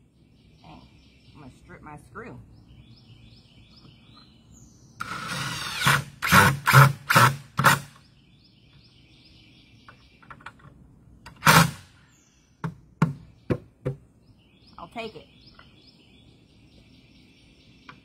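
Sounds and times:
cordless drill driving screw: 5.0s - 7.8s.

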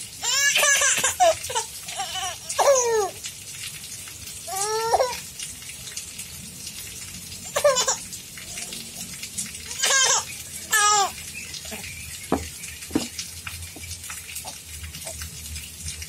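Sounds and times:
baby laughing in high squeals: 0.2s - 3.2s, 7.4s - 8.1s, 9.7s - 11.8s.

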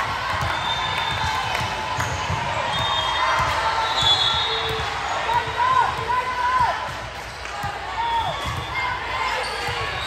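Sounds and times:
crowd chatter: 0.0s - 10.0s.

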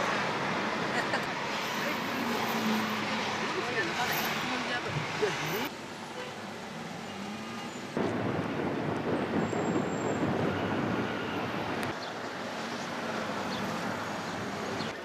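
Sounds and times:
street noise rushing: 0.0s - 15.0s.

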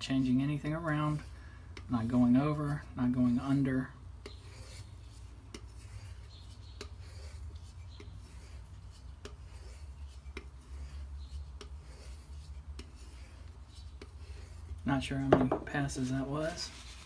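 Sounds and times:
knife rubbing on leather strop: 4.2s - 14.7s.

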